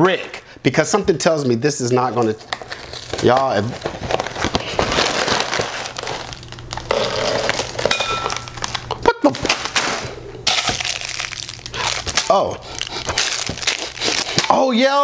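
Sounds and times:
plastic bag crinkling: 2.0s - 9.8s, 10.4s - 14.7s
cardboard box tearing: 3.0s - 7.8s, 12.8s - 14.6s.

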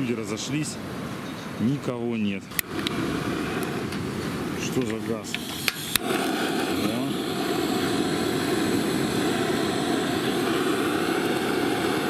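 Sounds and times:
gas torch hissing: 2.5s - 12.0s.

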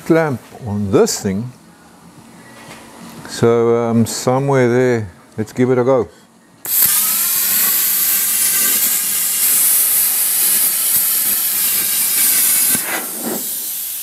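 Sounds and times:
plasma cutter hissing: 6.6s - 14.0s.

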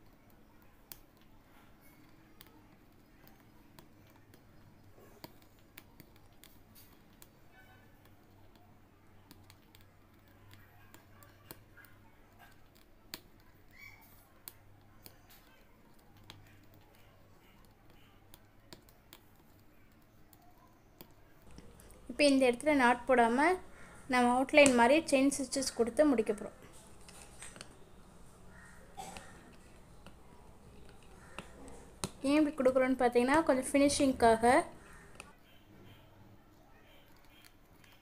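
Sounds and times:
low steady hum: 21.2s - 37.5s.

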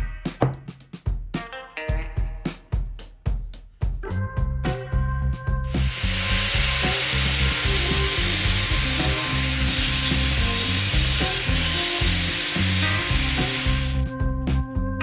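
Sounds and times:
background music with bass: 0.0s - 15.0s
angle grinder cutting wood: 5.7s - 14.0s.

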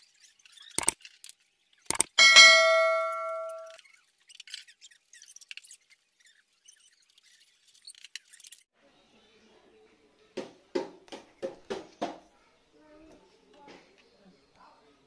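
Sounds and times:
ringing metallic clang: 2.2s - 3.7s.

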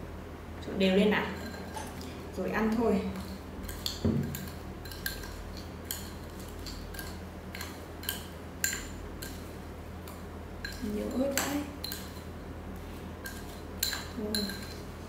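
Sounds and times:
metal spoon clinking glass bowl: 13.2s - 14.8s.

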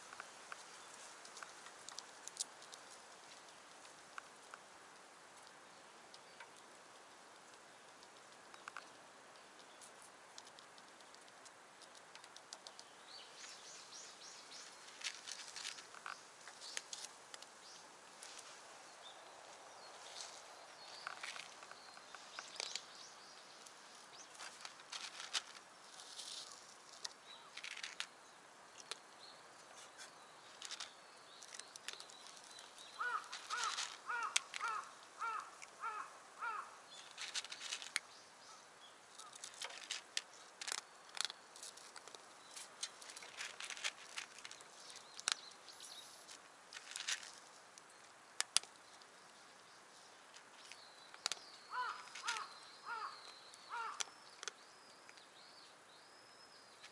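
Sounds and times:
dry grass rustling: 13.3s - 28.1s, 29.8s - 38.2s, 39.0s - 54.1s
bird calling: 32.2s - 37.8s, 51.1s - 54.6s
branch tapping on wooden boards: 33.0s - 36.6s, 51.1s - 53.1s.

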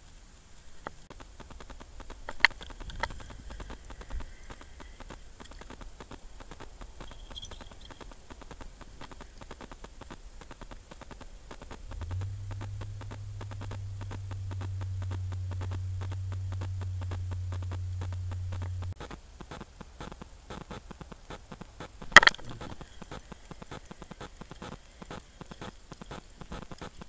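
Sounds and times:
faint crackle: 0.0s - 27.0s
steady low hum: 0.0s - 27.0s.

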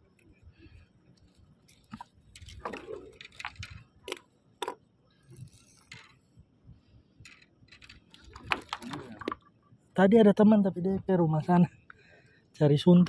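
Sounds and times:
light clicks and clinks: 1.1s - 6.3s.

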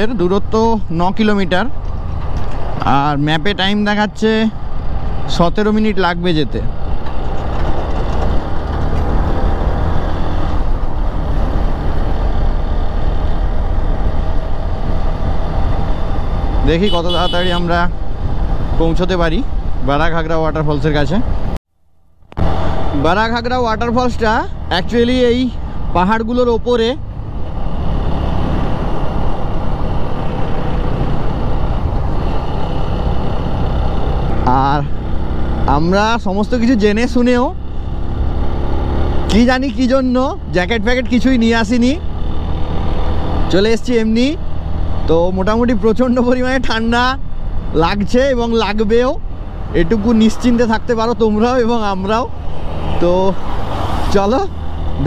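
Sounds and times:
motorcycle engine and road noise: 0.0s - 55.0s
wind rushing over microphone: 26.7s - 37.0s.

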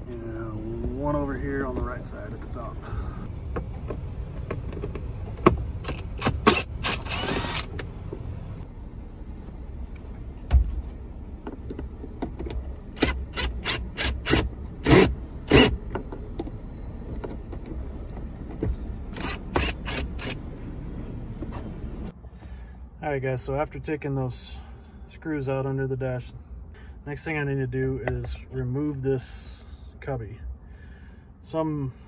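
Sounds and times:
cordless drill whirring bursts: 6.6s - 7.7s.

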